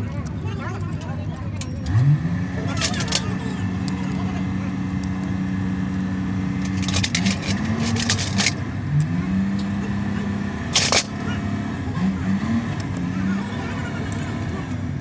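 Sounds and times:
engine running: 0.0 - 15.0
metallic clinks of tools: 10.8 - 11.1.

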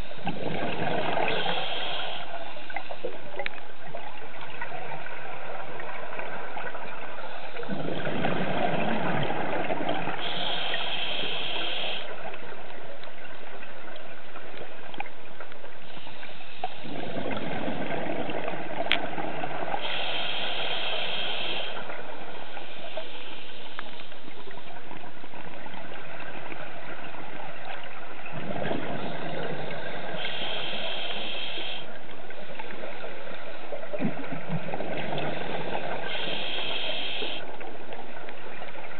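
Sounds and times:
exhaled air bubbling: 0.0 - 15.1, 15.8 - 38.9
regulator inhale hiss: 1.0 - 3.2, 10.0 - 12.3, 15.8 - 17.4, 19.5 - 24.3, 29.0 - 32.0, 35.0 - 37.6.

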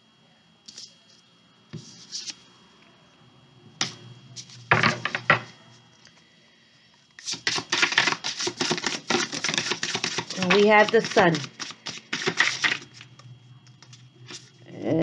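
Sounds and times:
deck of cards shuffling: 1.8 - 2.4, 7.2 - 13.2
cards rustling: 7.2 - 13.2.

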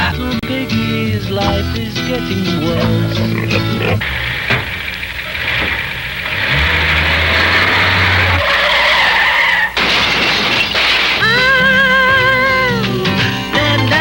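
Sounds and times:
low engine hum: 1.0 - 8.4
car tyres squealing: 1.5 - 10.9.

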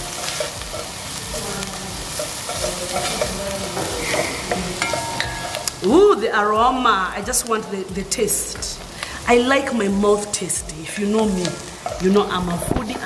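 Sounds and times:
onions sizzling in a pot: 0.0 - 13.0
wooden spatula scraping a pot: 0.1 - 5.8.

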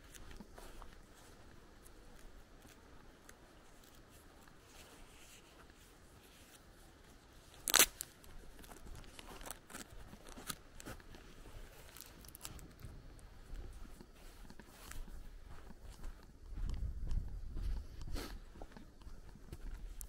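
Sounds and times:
footsteps on dirt path: 0.0 - 20.0
sharp crunch: 7.5 - 11.1.

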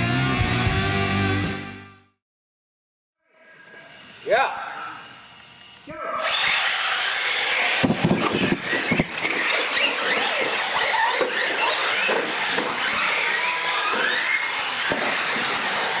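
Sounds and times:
electric motors whining: 3.4 - 16.0
tyre squeal: 6.0 - 16.0
knocks: 7.8 - 9.1.

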